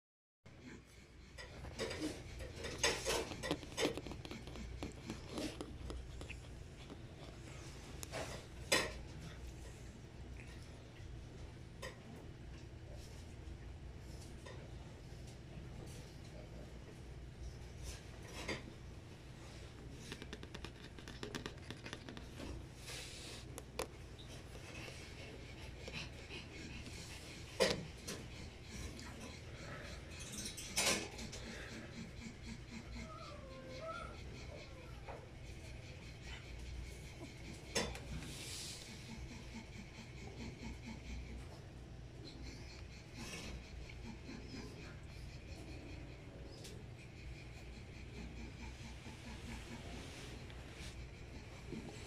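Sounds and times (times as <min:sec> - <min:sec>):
puppy claws clicking on rug: 0:01.4 - 0:08.9, 0:19.8 - 0:28.2.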